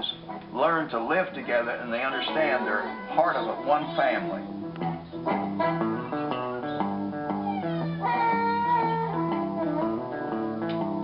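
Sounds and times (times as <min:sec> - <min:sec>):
guitar music with bass line: 0:00.0 - 0:11.0.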